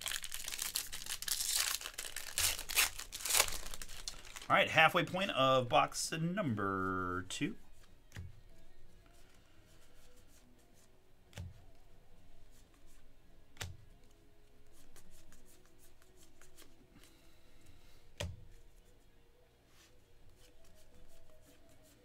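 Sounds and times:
trading cards rustling: 0.0 - 5.9.

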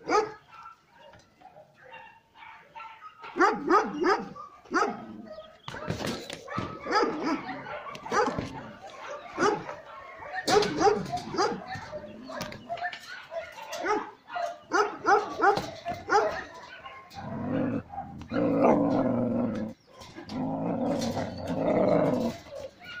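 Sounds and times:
young dogs yipping and barking: 0.0 - 23.0
dog growling low: 17.2 - 22.6.

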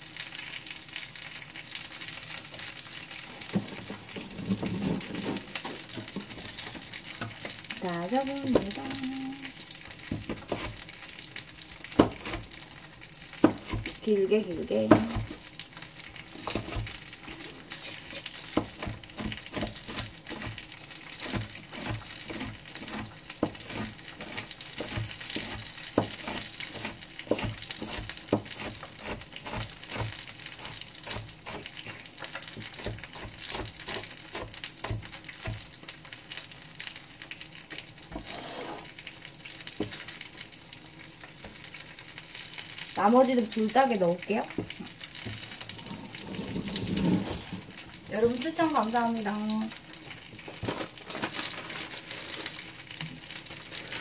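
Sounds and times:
dumplings sizzling in oil: 0.0 - 54.0
knife chopping on cutting board: 12.0 - 12.4, 13.4 - 14.0, 21.2 - 31.7.

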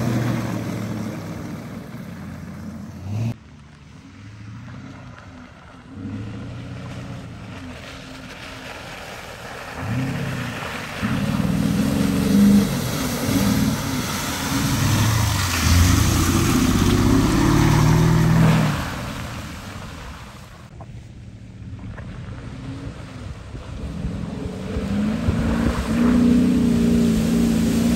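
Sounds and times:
car engine revving: 0.0 - 3.4, 4.1 - 20.6, 21.6 - 27.9
spray and mud slapping: 6.8 - 20.7, 24.3 - 27.9.

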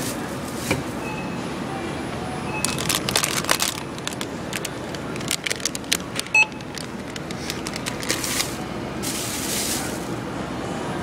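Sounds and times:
items rustling and knocking: 2.6 - 9.9
barcode scanner beep: 6.3 - 6.7.

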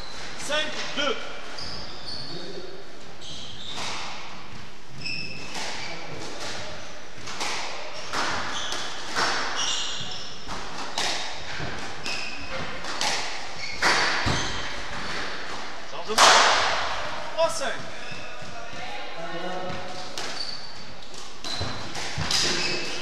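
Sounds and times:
shoes squeaking on wooden floor: 0.0 - 15.6, 17.6 - 23.0
squash ball smacks: 10.5 - 14.7.

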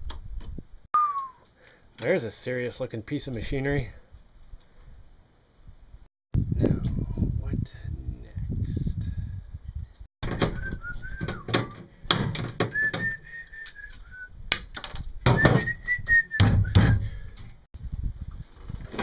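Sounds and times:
man whistling a tune: 1.0 - 1.4, 10.3 - 11.8, 12.7 - 14.4, 15.3 - 17.2.

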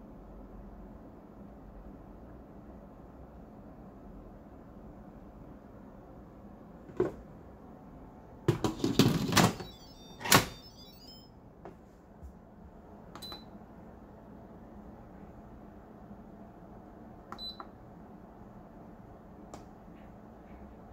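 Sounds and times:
short beep: 9.5 - 11.3.

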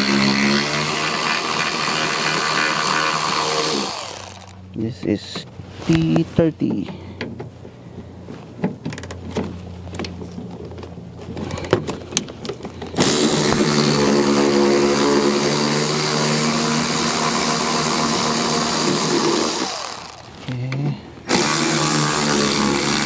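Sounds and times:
air ratchet hissing and whining: 0.0 - 4.6, 13.0 - 20.5, 21.3 - 23.0.

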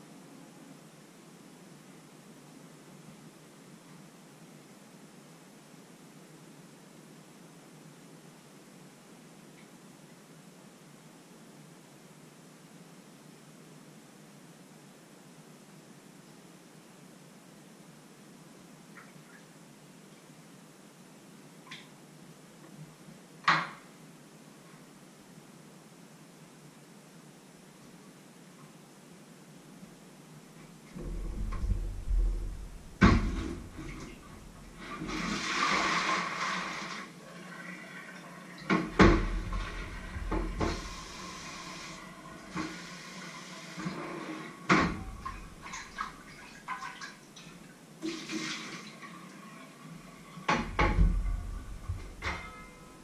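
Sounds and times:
running or pouring water: 31.0 - 52.6
pots and lids clattering: 50.5 - 52.9.

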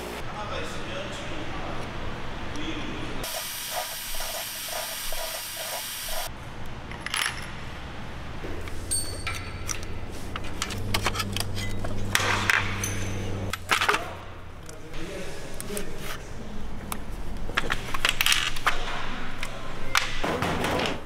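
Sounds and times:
metal parts clinking: 6.9 - 7.6.

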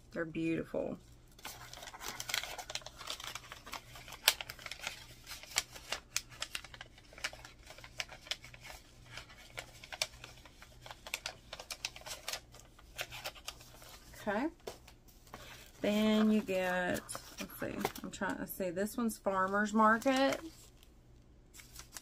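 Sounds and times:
paper rustling and clicking: 1.4 - 14.0, 19.9 - 20.9, 21.5 - 22.0.

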